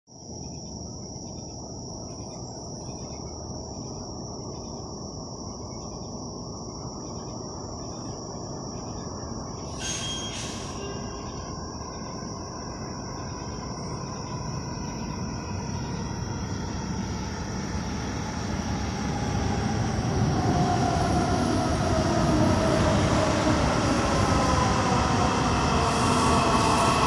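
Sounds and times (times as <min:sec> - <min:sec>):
night insects trilling: 0:00.1 - 0:27.0
train rumble: 0:01.6 - 0:27.0.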